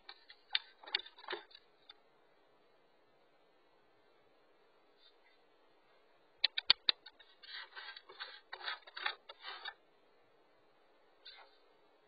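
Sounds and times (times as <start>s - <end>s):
paw scraping against device: 6.6s - 9.8s.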